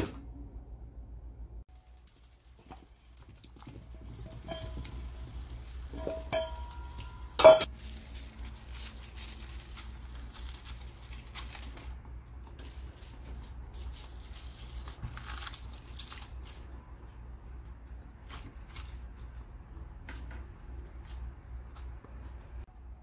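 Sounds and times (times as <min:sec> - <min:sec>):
cabbage leaves rustling: 0:01.7 - 0:12.0, 0:12.6 - 0:16.8
metallic clink against a pot: 0:04.1 - 0:05.1, 0:05.9 - 0:07.7.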